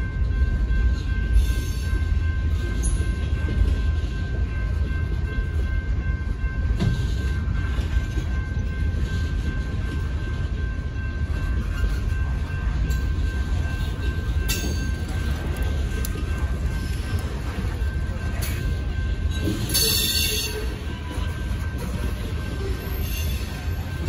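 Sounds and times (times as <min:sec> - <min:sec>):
train wheels rumbling on rails: 0:00.0 - 0:24.0.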